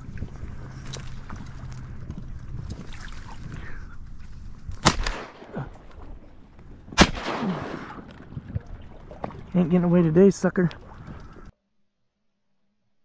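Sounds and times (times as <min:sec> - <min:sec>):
shotgun blasts: 0:04.8 - 0:05.8, 0:06.9 - 0:08.1.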